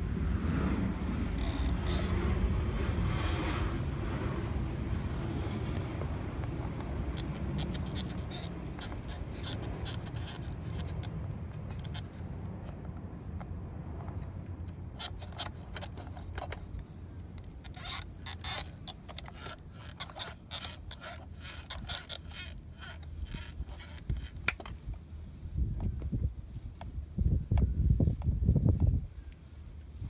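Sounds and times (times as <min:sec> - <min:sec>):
steady low rumble: 0:00.0 - 0:30.0
pliers scraping and clicking: 0:01.3 - 0:02.7, 0:04.1 - 0:12.8, 0:14.0 - 0:24.9.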